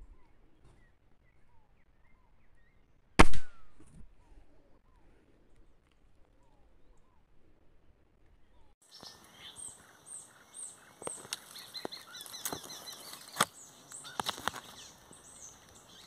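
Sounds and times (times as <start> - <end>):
dry leaves crackling and rustling: 11.1 - 16.0.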